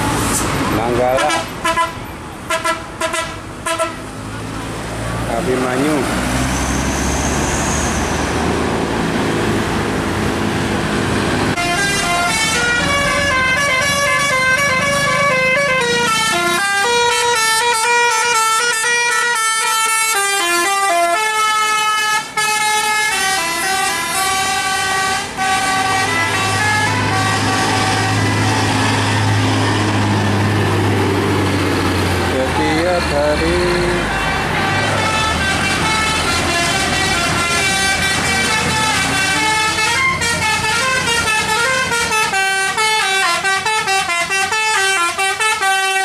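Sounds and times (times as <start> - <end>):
bus engine and tyre noise: 0.0 - 46.0
bus air horns playing a tune: 1.1 - 4.1, 11.6 - 30.2, 33.5 - 46.0.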